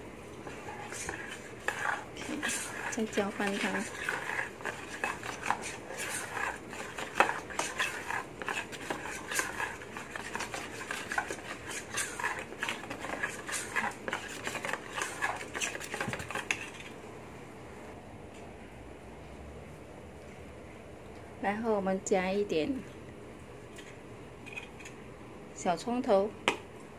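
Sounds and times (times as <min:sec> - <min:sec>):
spoon stirring batter in metal bowl: 0:00.0 - 0:17.0.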